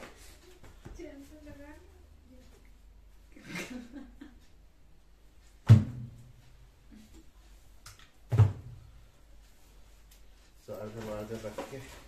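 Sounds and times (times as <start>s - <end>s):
paper files rustling: 10.7s - 12.0s.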